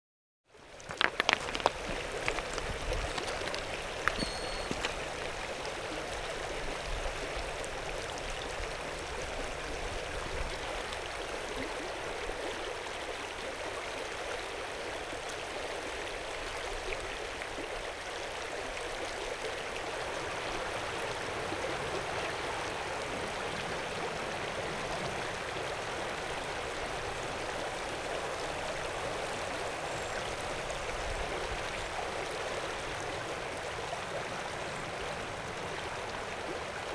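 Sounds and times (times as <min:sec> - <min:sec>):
river water rushing: 0:00.8 - 0:16.5.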